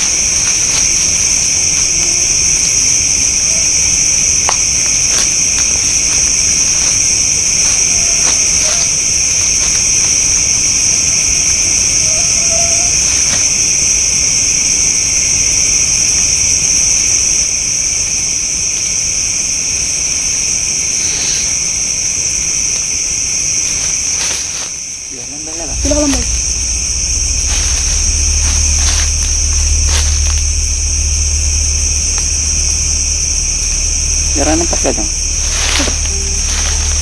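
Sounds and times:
low background rumble: 0.0s - 18.0s, 24.9s - 37.0s
crickets chirping: 0.0s - 37.0s.

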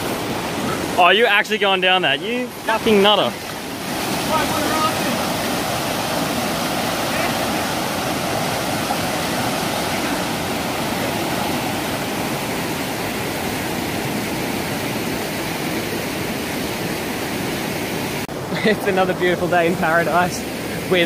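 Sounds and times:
water rushing down rock chute: 2.7s - 12.3s.

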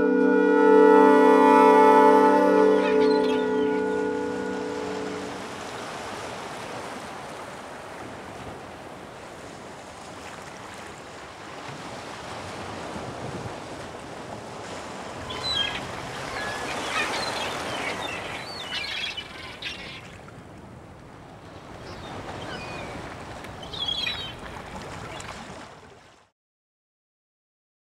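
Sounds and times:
sea waves washing: 0.0s - 26.2s
seagull cries: 1.3s - 5.3s, 15.2s - 20.2s, 23.6s - 24.4s.

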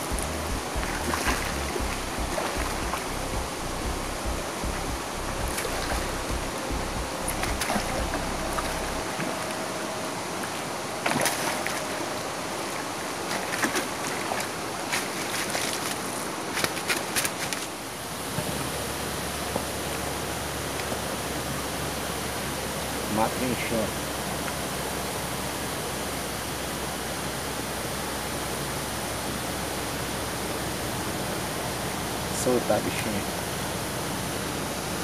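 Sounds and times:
steady hiss: 0.0s - 13.6s, 17.7s - 35.0s
fish splashing in water: 0.2s - 3.2s, 7.2s - 17.8s.

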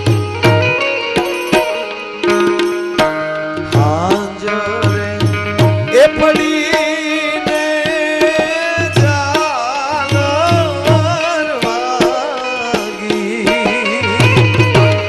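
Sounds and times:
tabla playing a steady rhythm: 0.0s - 15.0s
person singing a melody: 3.6s - 15.0s.

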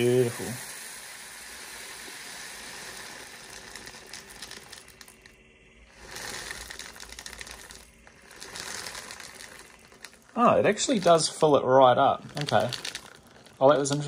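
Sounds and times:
beads pouring: 0.0s - 14.0s
plastic bag crinkling: 2.8s - 14.0s.

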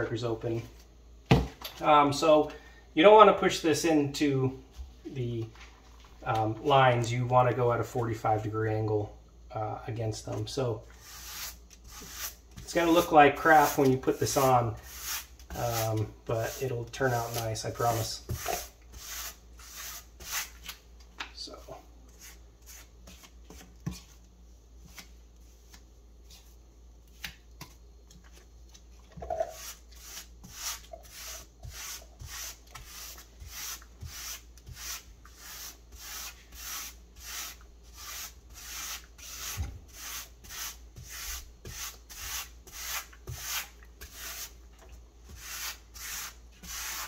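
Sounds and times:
grout float scraping tiles: 10.9s - 20.8s, 29.1s - 47.0s.

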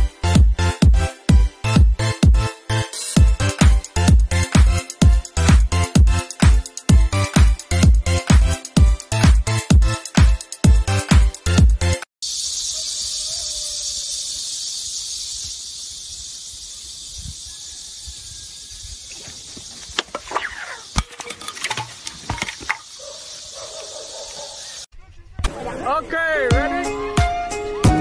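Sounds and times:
insects droning: 12.2s - 24.9s
sharp knocks and scrapes: 19.2s - 23.0s.

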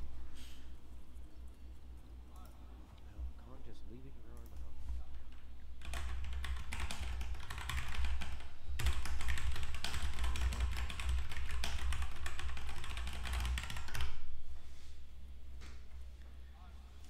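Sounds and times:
rapid typing on a keyboard: 4.4s - 14.3s.

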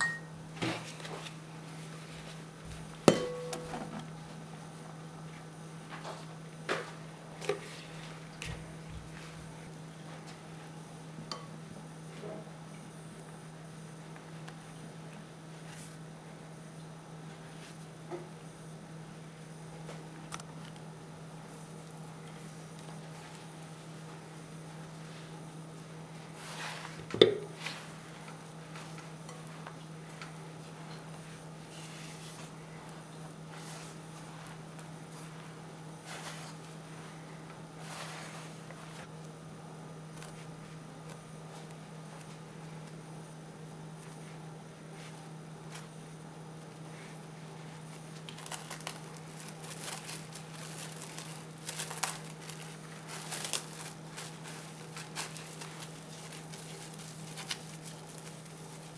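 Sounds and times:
low steady hum: 0.0s - 58.9s
spatula knocking glass bowl: 3.1s - 3.8s
hands working dough in bowl: 26.2s - 39.2s, 46.6s - 58.9s
cling film crinkling: 48.1s - 58.9s.

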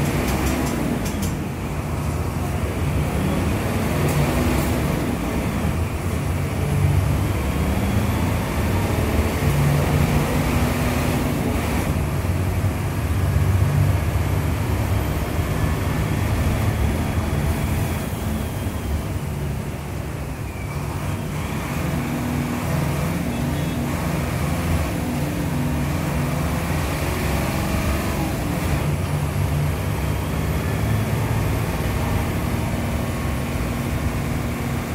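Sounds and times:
bus diesel engine idling: 0.0s - 9.1s.

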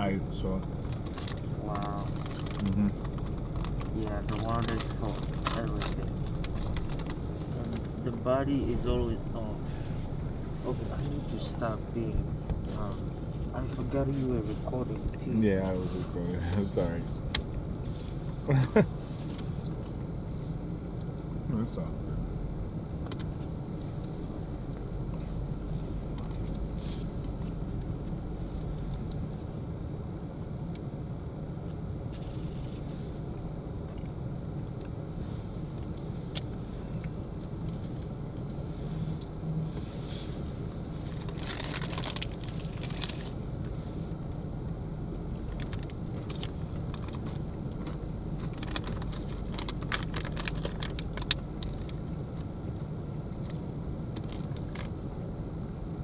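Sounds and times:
car idling hum: 0.0s - 56.0s
rustling of handled objects: 0.8s - 8.0s, 38.6s - 43.4s.

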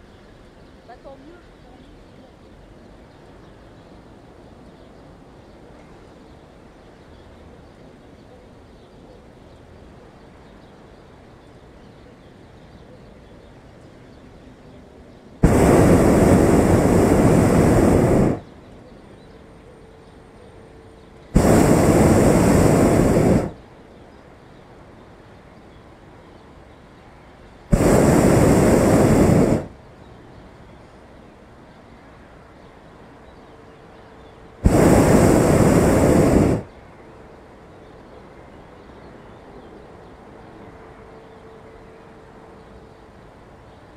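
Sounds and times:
faint steady hiss: 0.0s - 43.9s
propane burner blasts: 15.4s - 18.6s, 21.3s - 23.6s, 27.6s - 29.9s, 34.6s - 36.7s.

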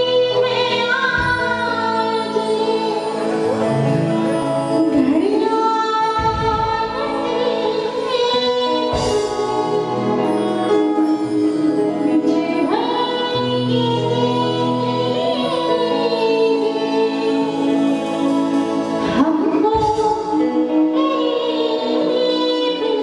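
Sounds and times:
woman singing into microphone: 0.0s - 23.0s
band on drums keyboards guitar: 1.0s - 23.0s.

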